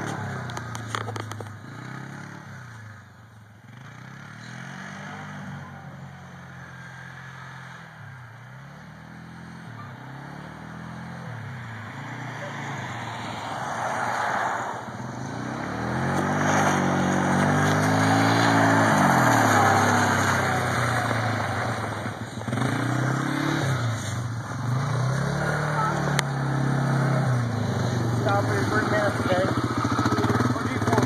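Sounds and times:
atv engine revving: 0.0 - 31.0.

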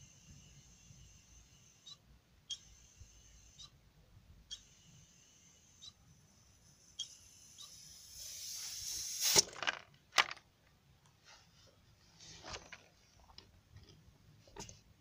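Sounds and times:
compressed air hissing: 4.5 - 9.5.

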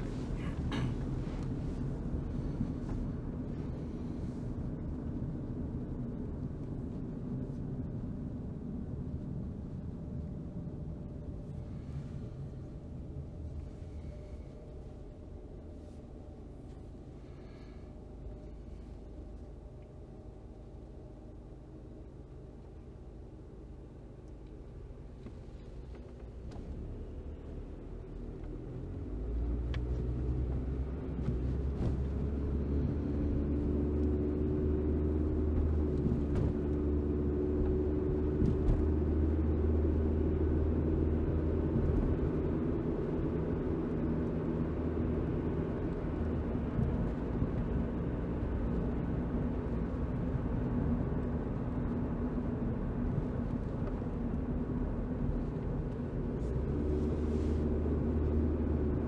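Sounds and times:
car engine drone: 0.0 - 59.0
tyre and road rumble: 34.9 - 39.2.

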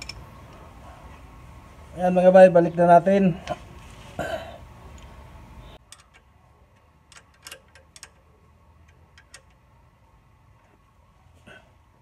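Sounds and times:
steady background hiss: 0.0 - 12.0
wrench metal clicks: 5.8 - 9.6.

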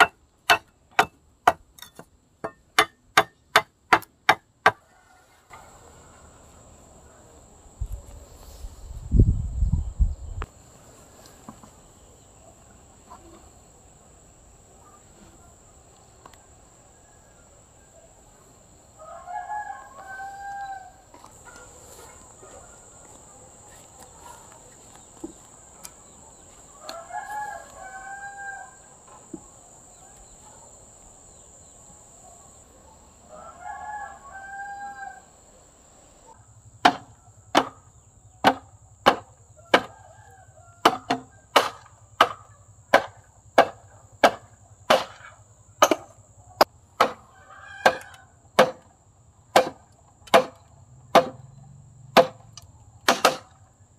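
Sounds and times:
rooster crowing: 4.7 - 6.7, 18.9 - 23.7, 26.7 - 29.0, 33.2 - 35.4, 39.6 - 41.5, 47.2 - 48.4
sharp chopping strikes: 36.8 - 37.8, 38.4 - 39.9, 40.8 - 45.2, 47.0 - 47.2, 48.6 - 48.9, 49.6 - 51.4, 52.2 - 52.4, 53.1 - 53.5.

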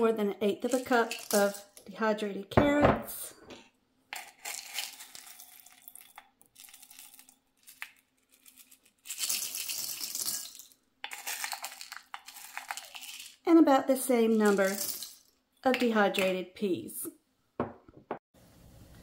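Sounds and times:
dried peas pouring onto pasta: 0.7 - 1.7, 4.2 - 13.5, 14.3 - 15.2.

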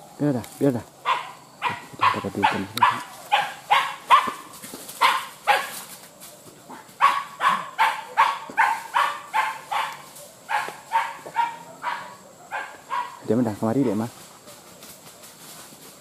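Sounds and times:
hunting dog barking: 1.0 - 5.9, 6.7 - 14.6.

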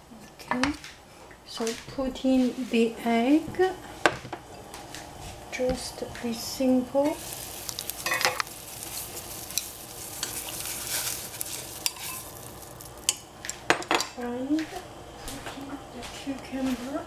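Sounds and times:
boiling water bubbling: 4.4 - 13.6
chopsticks stirring in saucepan: 6.2 - 13.9
chopsticks clicking against pan: 7.6 - 13.6.

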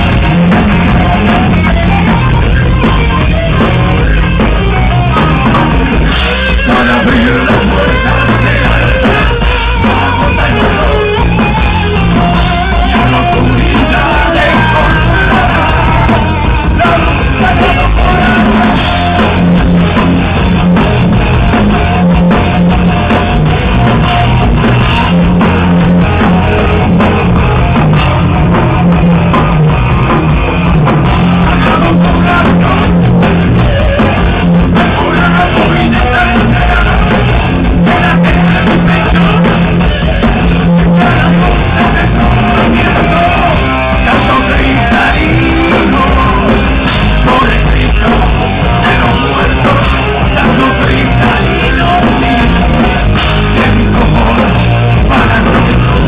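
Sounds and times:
drum kit: 0.0 - 56.0
electric guitars: 0.0 - 56.0
person singing: 5.2 - 19.8, 31.3 - 56.0.

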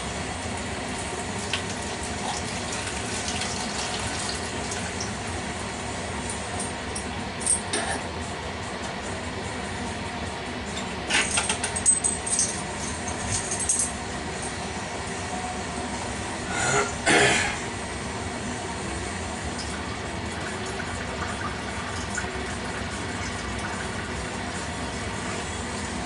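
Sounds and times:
metal fittings clinking and rattling: 11.1 - 13.9.

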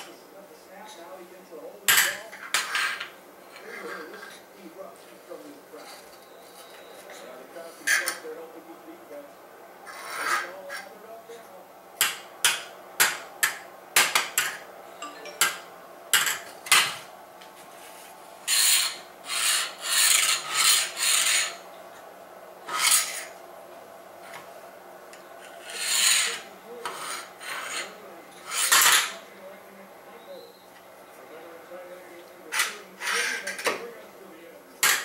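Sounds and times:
metal tool scraping tiles: 9.9 - 10.9, 18.4 - 21.6, 22.7 - 23.4, 25.4 - 29.2
metal tools clacking on tiles: 28.5 - 29.2.

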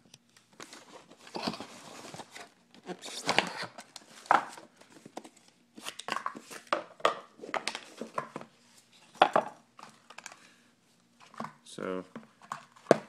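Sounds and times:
cardboard rustling and scraping: 0.6 - 6.7.

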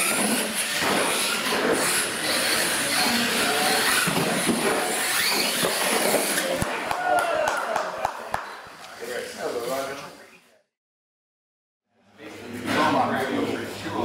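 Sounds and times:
electric toy trucks whining: 0.0 - 6.6.

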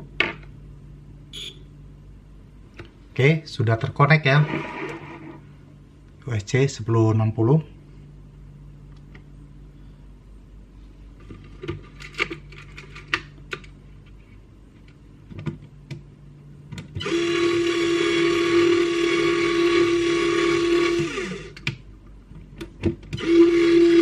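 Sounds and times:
electric winch motor whine: 4.4 - 5.4, 17.0 - 21.7, 23.2 - 24.0.

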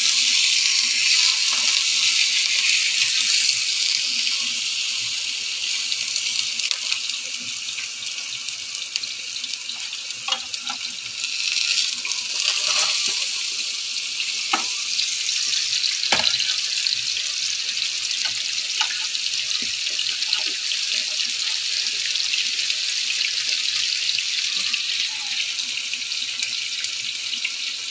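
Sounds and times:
hot oil sizzling: 0.0 - 27.9
spoon clinking on pans: 12.1 - 13.4.

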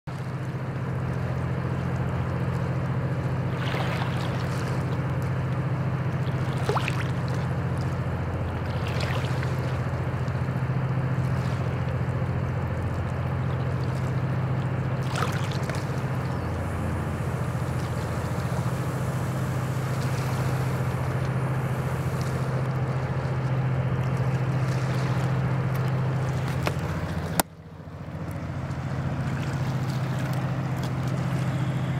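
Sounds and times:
distant diesel engine drone: 0.1 - 31.9
water rushing wash: 0.1 - 31.9.

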